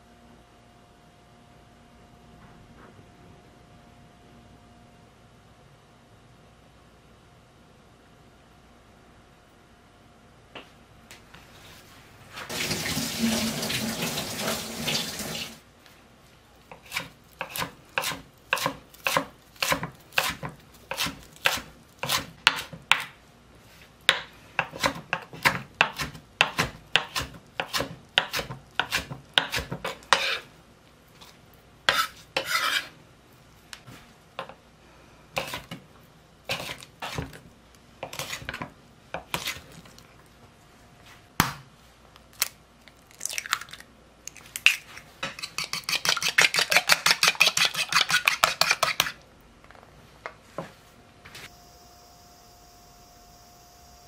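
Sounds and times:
knife chopping on wooden board: 0:16.7 - 0:23.1, 0:24.1 - 0:30.4.

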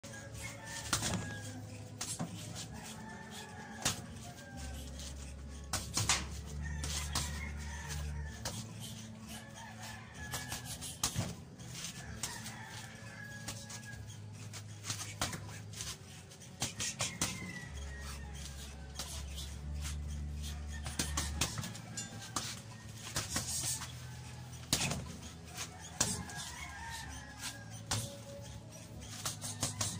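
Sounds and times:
roosters crowing: 0:00.0 - 0:29.9
fists slapping a reflex ball: 0:03.8 - 0:04.1, 0:05.7 - 0:07.2, 0:10.3 - 0:12.3, 0:14.8 - 0:15.9, 0:16.6 - 0:17.4, 0:22.3 - 0:23.9, 0:24.6 - 0:26.5, 0:27.9 - 0:28.2, 0:29.1 - 0:29.9.

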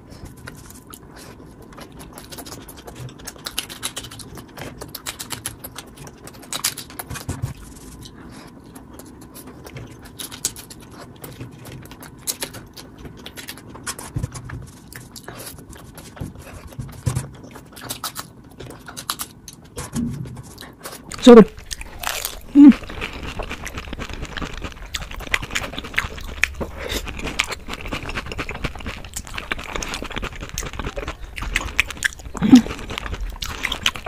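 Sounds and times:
chewing smacks: 0:20.6 - 0:34.0.

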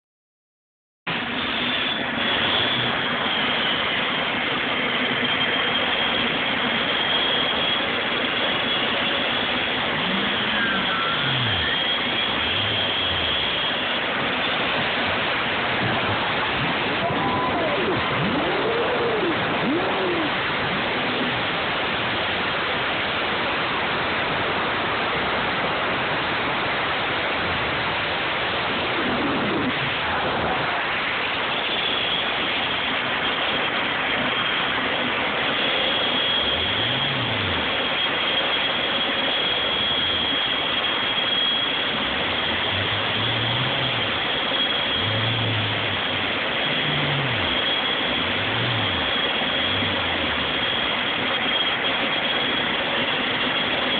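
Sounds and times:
high steady whine: 0:01.1 - 0:53.9
small gas turbine rushing: 0:01.1 - 0:53.9.

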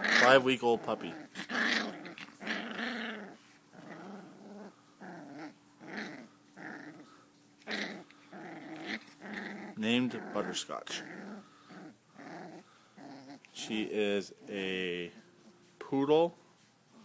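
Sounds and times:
puppy growling in play: 0:00.0 - 0:13.6.

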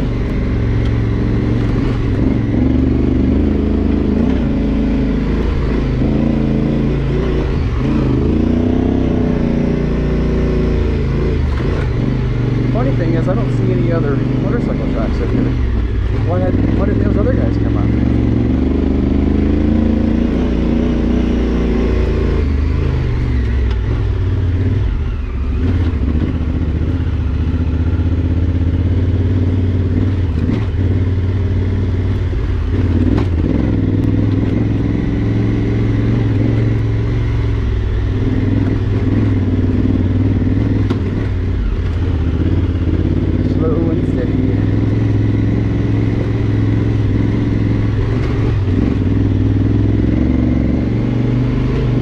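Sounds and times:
motorcycle engine under load: 0:00.0 - 0:52.0.

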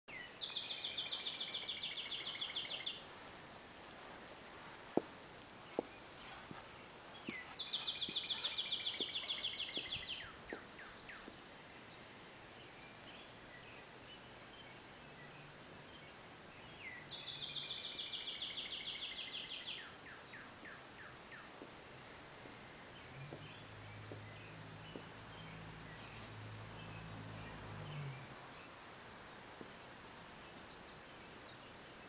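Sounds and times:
songbird trilling: 0:00.1 - 0:03.0, 0:07.2 - 0:11.3
boot heels clicking on stone steps: 0:04.9 - 0:11.4, 0:24.9 - 0:25.1.

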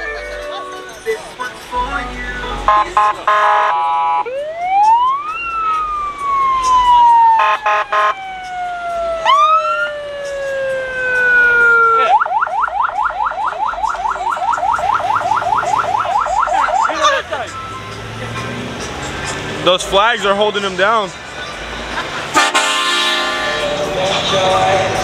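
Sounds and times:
electronic siren: 0:02.7 - 0:17.2.

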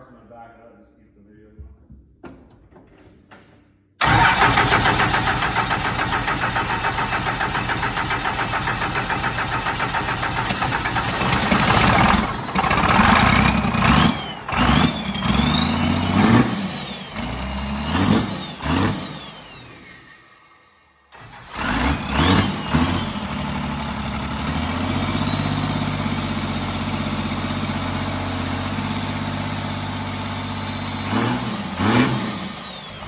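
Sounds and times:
diesel engine cranking on starter: 0:04.0 - 0:33.0
diesel engine revving unevenly: 0:09.3 - 0:19.8, 0:21.2 - 0:33.0.

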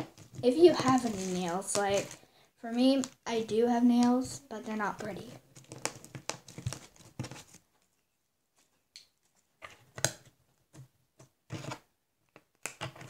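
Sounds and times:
plastic tubs clicking and rustling: 0:00.0 - 0:02.2.

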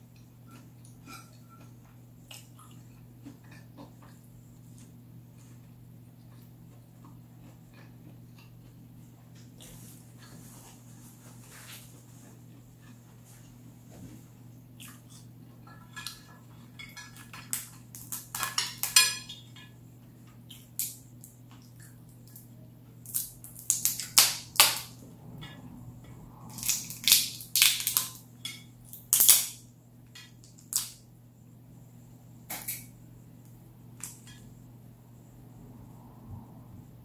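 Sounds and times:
crawfish shell cracking: 0:23.0 - 0:24.9, 0:26.5 - 0:28.2.

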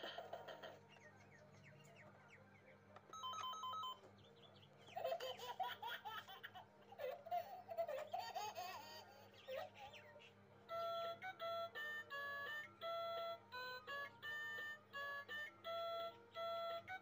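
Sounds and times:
person laughing: 0:00.0 - 0:00.9
electronic ringing tone: 0:03.2 - 0:04.1.

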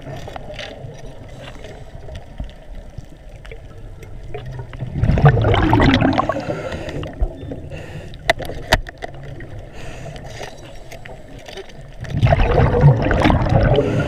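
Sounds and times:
low underwater rumble: 0:00.0 - 0:08.0, 0:11.0 - 0:14.0
gurgling rush of water and bubbles: 0:00.0 - 0:14.0.

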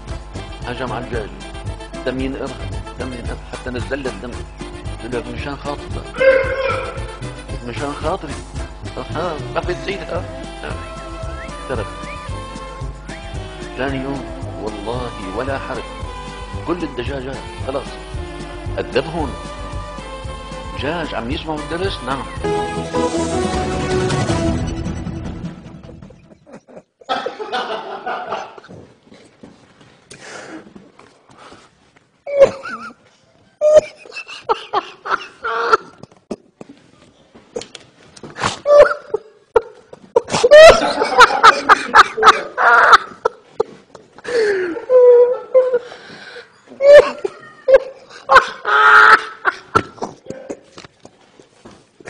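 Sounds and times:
man stifling laughter: 0:25.8 - 0:28.7, 0:32.3 - 0:33.0, 0:33.6 - 0:36.2, 0:38.6 - 0:45.9, 0:46.8 - 0:50.0.

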